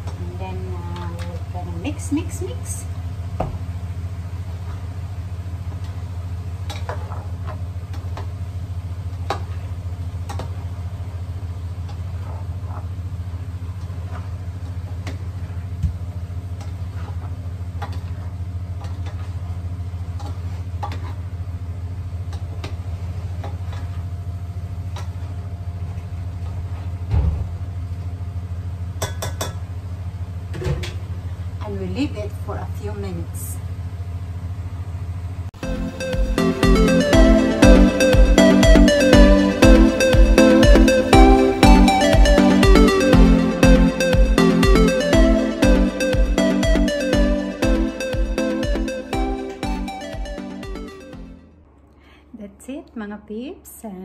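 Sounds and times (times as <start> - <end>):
steady low hum: 33.6 - 53.0.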